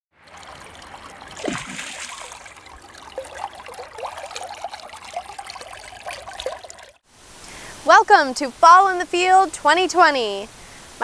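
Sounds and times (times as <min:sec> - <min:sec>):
stream water trickling: 0:00.1 - 0:07.7.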